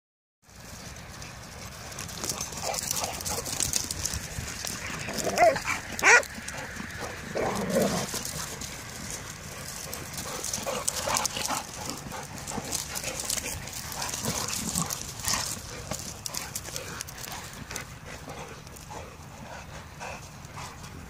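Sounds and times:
dogs barking: 0:04.9 - 0:08.6.

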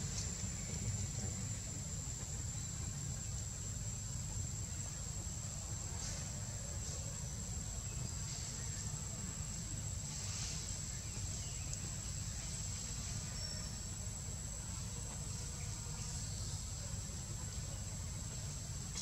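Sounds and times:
high-pitched insect trill: 0:11.2 - 0:14.3.

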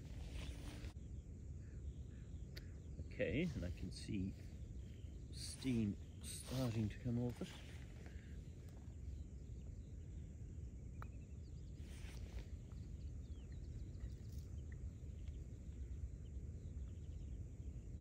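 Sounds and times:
brief rustle: 0:00.0 - 0:01.0
faint bird chirps: 0:00.0 - 0:18.0
wind rumble on microphone: 0:00.0 - 0:18.0.

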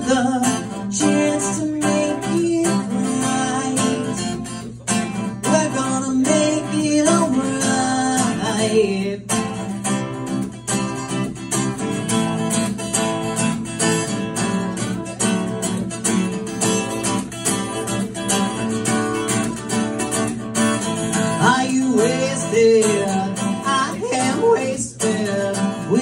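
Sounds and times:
man singing: 0:00.0 - 0:04.6, 0:05.2 - 0:09.8, 0:21.3 - 0:26.0
acoustic guitar strumming: 0:00.0 - 0:26.0.

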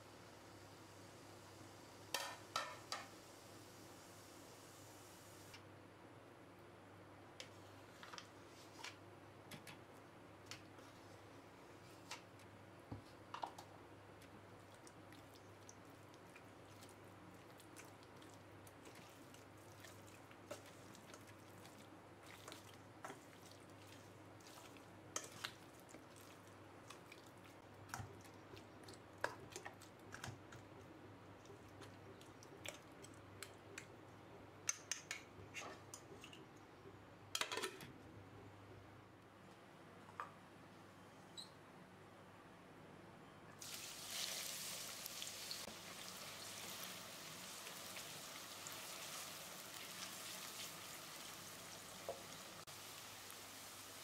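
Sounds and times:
spoon mixing soft squelching: 0:09.9 - 0:13.3, 0:14.1 - 0:36.9.

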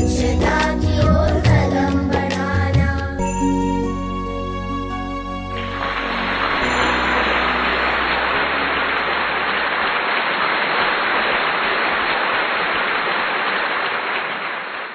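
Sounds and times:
background music: 0:00.0 - 0:09.6
steady hiss: 0:05.6 - 0:14.9.

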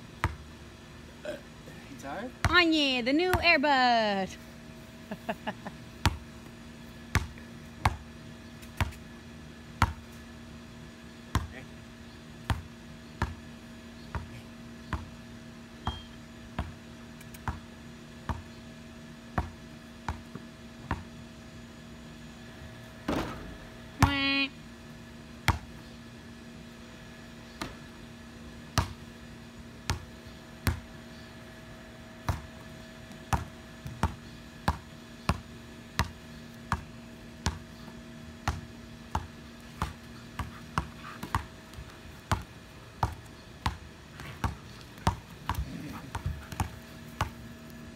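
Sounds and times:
faint steady hum: 0:00.0 - 0:47.9
basketball bouncing on concrete: 0:00.2 - 0:00.5, 0:02.4 - 0:03.5, 0:06.0 - 0:06.3, 0:07.1 - 0:09.0, 0:09.8 - 0:10.1, 0:11.3 - 0:11.6, 0:12.4 - 0:13.4, 0:15.8 - 0:18.5, 0:19.3 - 0:21.2, 0:23.1 - 0:24.3, 0:25.4 - 0:25.7, 0:28.7 - 0:29.0, 0:29.8 - 0:30.9, 0:32.2 - 0:37.7, 0:38.4 - 0:47.5.

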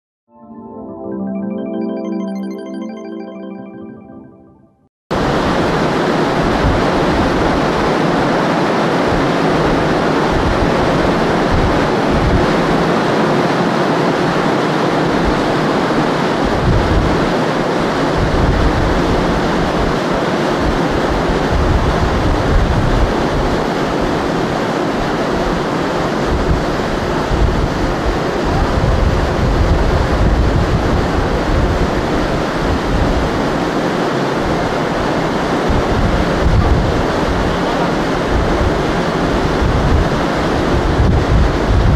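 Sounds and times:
wind and sea rushing: 0:05.1 - 0:41.9
wind buffeting microphone: 0:26.2 - 0:33.6, 0:35.7 - 0:41.9.

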